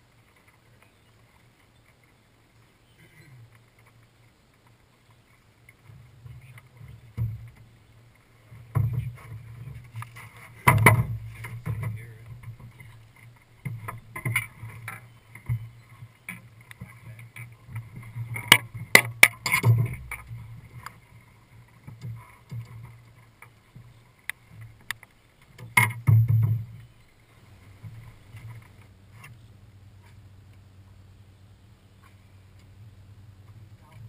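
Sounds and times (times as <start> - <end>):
low steady hum: 0.0 - 34.0
knocks and clatter on boat deck: 5.7 - 7.8, 8.4 - 26.9.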